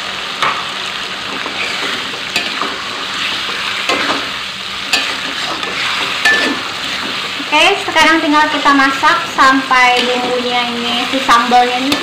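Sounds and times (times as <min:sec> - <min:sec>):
food sizzling in a wok: 0:00.0 - 0:12.0
metal spatula scraping and tapping: 0:04.9 - 0:07.2.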